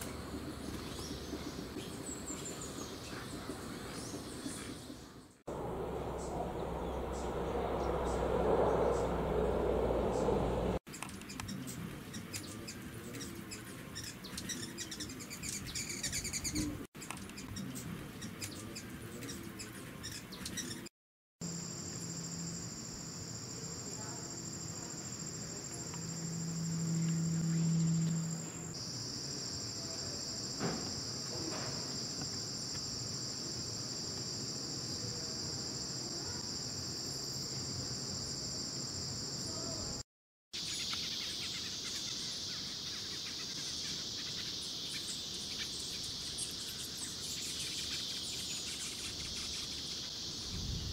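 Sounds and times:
shrill insect drone: 21.4s - 40.0s, 40.6s - 50.9s.

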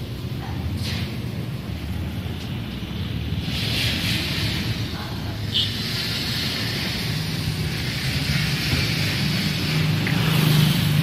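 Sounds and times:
traffic noise: 0.0s - 11.0s.

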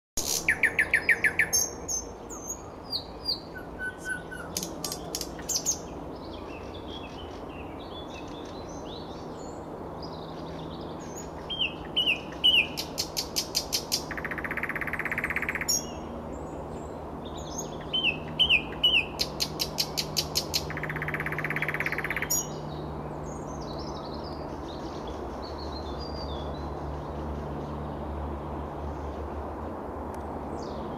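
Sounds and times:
nightingale singing: 0.2s - 9.1s, 11.0s - 16.0s, 17.3s - 22.6s.

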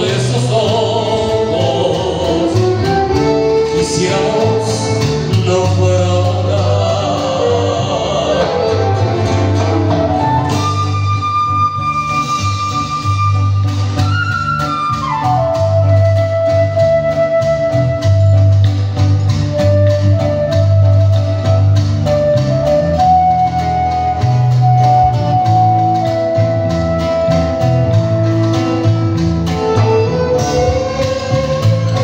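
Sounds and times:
electric bass: 0.0s - 32.0s
flute melody: 0.0s - 32.0s
percussion steady beat: 0.0s - 32.0s
strummed acoustic guitar: 0.0s - 32.0s
violins: 27.6s - 32.0s.

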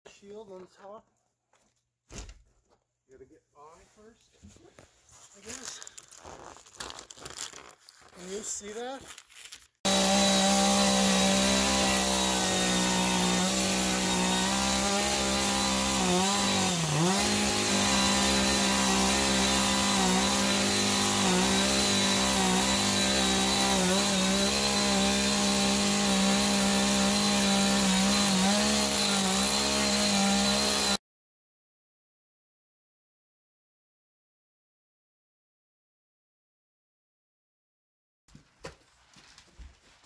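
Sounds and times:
chainsaw cutting wood: 9.9s - 31.0s.

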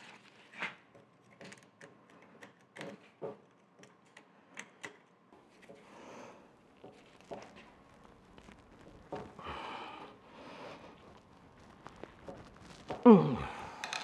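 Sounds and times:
small metal clicks and scrapes: 13.8s - 14.0s.

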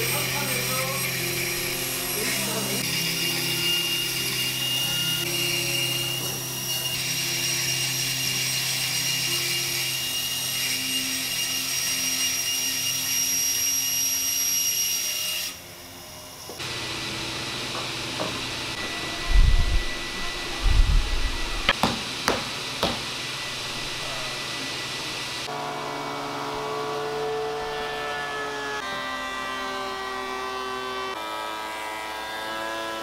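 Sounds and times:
bandsaw cutting wood: 0.0s - 15.6s, 16.6s - 33.0s
steady hum: 18.6s - 21.8s.

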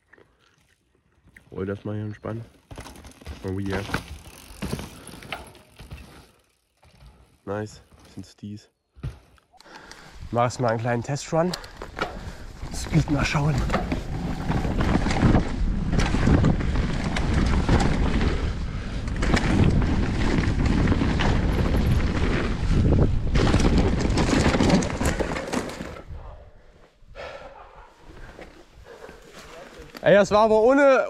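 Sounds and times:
bike knocks and rattles: 2.6s - 7.2s, 9.0s - 9.4s, 11.6s - 26.0s
tyres rumbling over dirt: 11.2s - 26.1s
wind buffeting microphone: 12.1s - 25.3s.

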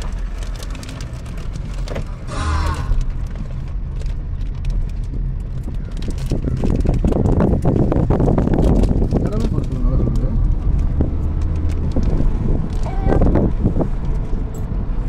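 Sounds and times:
car engine and tyre rumble: 0.0s - 15.0s.

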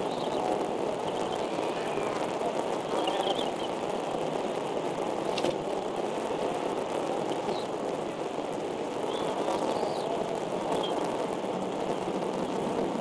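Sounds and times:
steady rushing noise: 0.0s - 13.0s
faint high chirps: 1.0s - 2.3s.

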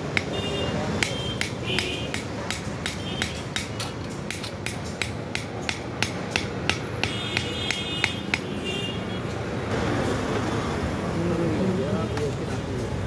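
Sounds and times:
hammer striking iron on anvil: 1.0s - 8.4s.

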